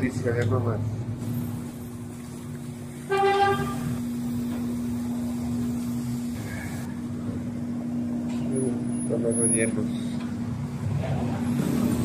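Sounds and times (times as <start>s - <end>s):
vehicle horn: 3.1s - 4.0s.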